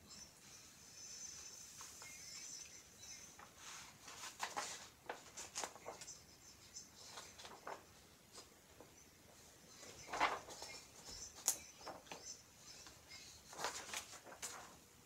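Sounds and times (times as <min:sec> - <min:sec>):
paper rustling: 0:03.4 - 0:06.2, 0:07.0 - 0:14.9.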